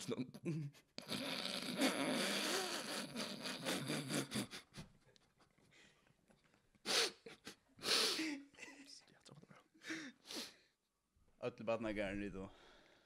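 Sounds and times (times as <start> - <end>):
man laughing wheezily: 0.5 - 5.0, 6.9 - 8.8
sharp burst of breath: 6.8 - 8.4, 10.0 - 10.6.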